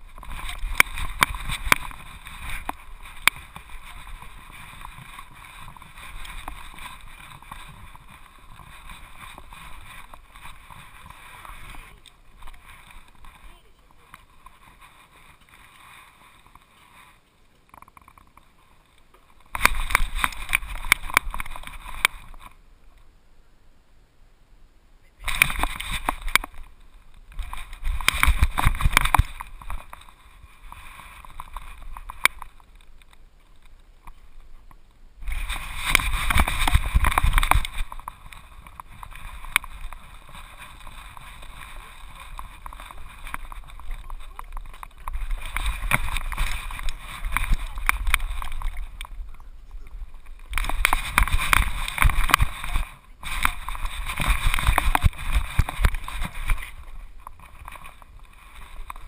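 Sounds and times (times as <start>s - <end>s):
fur and harness rustling: 0.0s - 17.2s, 35.2s - 49.2s, 49.9s - 59.0s
camera rubbing and knocking: 0.0s - 18.4s, 19.3s - 22.6s, 25.2s - 33.2s, 35.2s - 59.0s.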